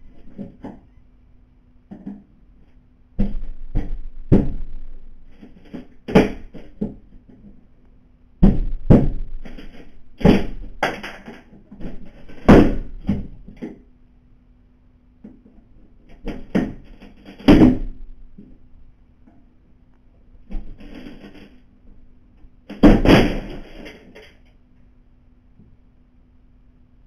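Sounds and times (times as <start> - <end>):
heavy knocks on a window: 3.2 - 7.1, 8.4 - 11.0, 11.8 - 13.6, 16.2 - 18.5.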